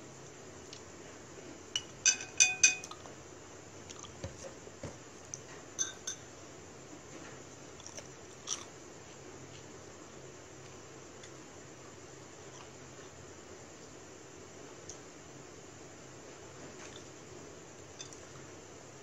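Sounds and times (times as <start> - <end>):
chopsticks clinking on ceramic bowl: 1.8 - 3.0, 5.8 - 6.2.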